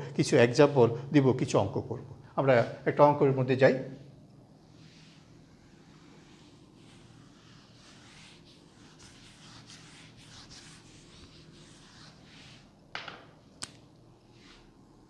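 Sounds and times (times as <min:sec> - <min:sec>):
duster wiping whiteboard: 0:04.6 - 0:12.9, 0:14.3 - 0:14.8
knock: 0:12.9 - 0:13.3.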